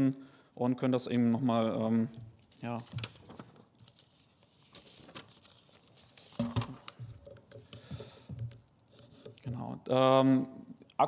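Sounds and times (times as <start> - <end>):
paper rustling and crinkling: 2.4 - 7.2.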